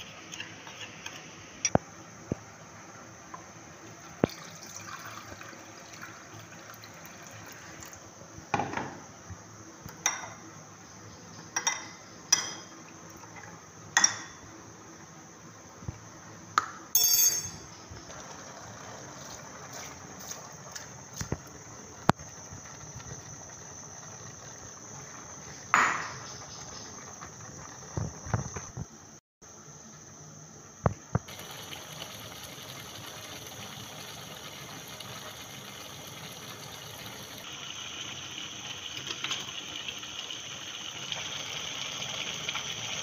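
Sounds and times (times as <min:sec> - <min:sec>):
water pouring into bowl: 0:04.2 - 0:08.0, 0:31.3 - 0:43.0
spoon clinking against glass bowl: 0:17.0 - 0:17.8.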